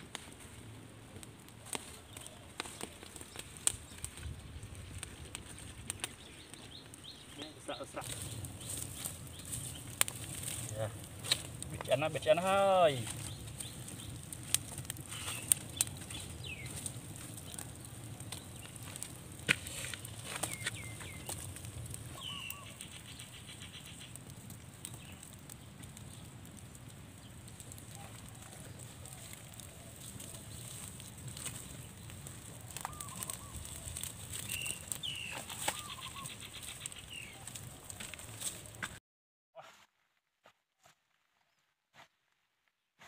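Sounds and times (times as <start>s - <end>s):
fire crackling and popping: 0.0s - 39.0s
birds chirping and trilling: 5.7s - 10.2s, 13.1s - 14.4s, 15.0s - 18.9s, 20.3s - 24.3s, 32.8s - 37.8s.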